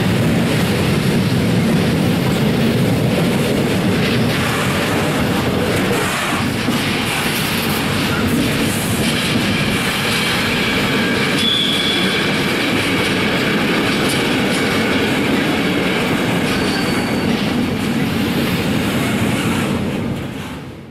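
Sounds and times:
train wheels rumbling on rail: 0.0s - 20.9s
high-pitched wheel squeals: 11.3s - 12.3s, 16.5s - 17.4s.

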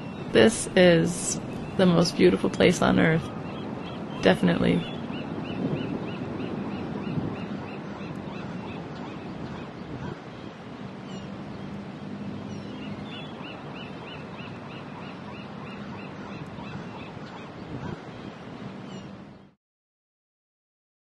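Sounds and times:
wind and surf rushing: 0.0s - 19.6s.

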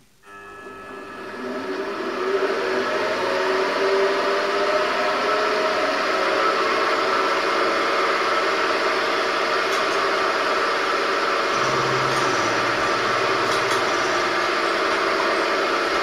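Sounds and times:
milling machine motor whirring: 11.3s - 16.0s.

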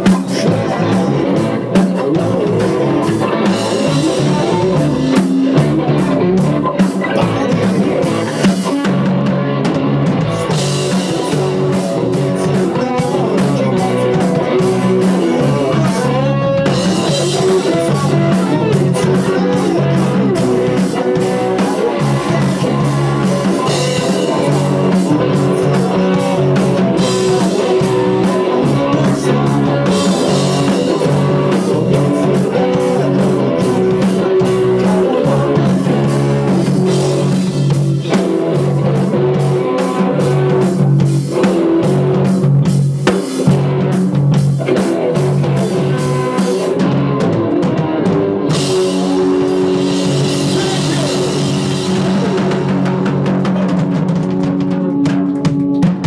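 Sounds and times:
person singing: 0.0s - 42.3s, 44.6s - 56.0s
drum kit: 0.0s - 56.0s
electric guitar: 0.0s - 56.0s.

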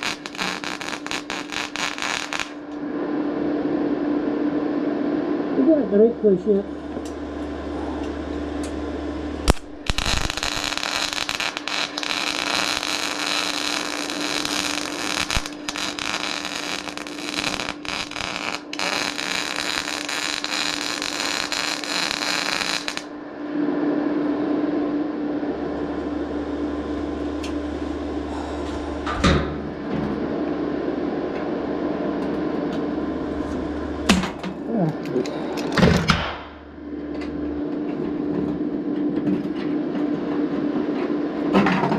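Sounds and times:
welding arc crackling and hissing: 0.0s - 2.8s, 7.0s - 23.1s
machine hum: 0.0s - 41.9s.

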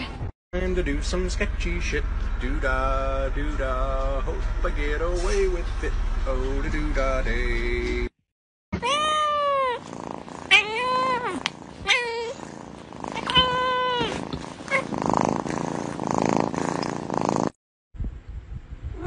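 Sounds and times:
cat meowing: 8.8s - 9.8s, 10.5s - 12.4s, 13.2s - 14.8s
cat purring: 9.6s - 17.6s.

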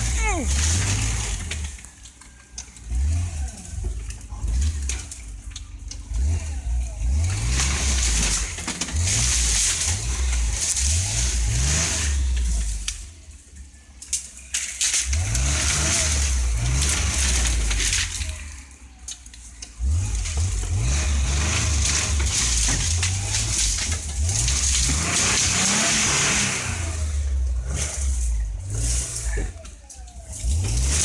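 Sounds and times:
car engine revving: 0.0s - 13.4s, 14.8s - 19.0s, 19.6s - 31.0s
branches scraping against car: 0.0s - 31.0s.

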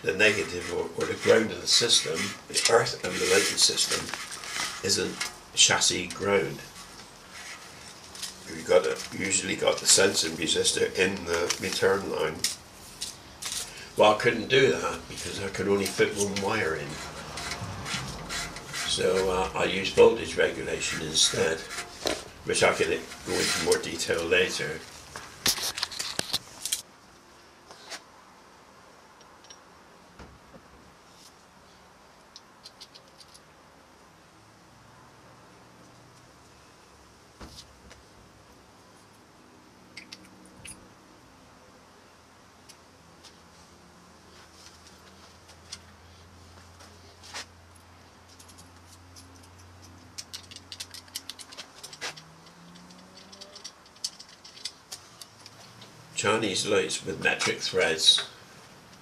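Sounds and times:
clicks of small metal fittings: 32.3s - 33.4s, 40.0s - 40.8s, 48.3s - 55.9s.

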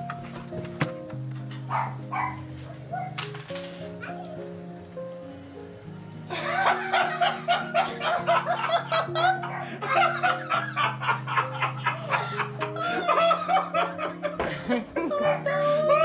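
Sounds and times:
music with low sustained notes: 0.0s - 16.0s
person laughing hard: 6.3s - 16.0s.

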